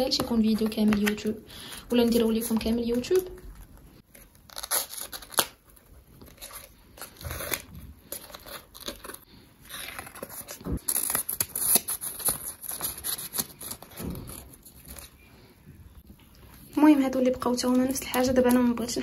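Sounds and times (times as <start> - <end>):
paper rustling and scraping: 1.9 - 15.2.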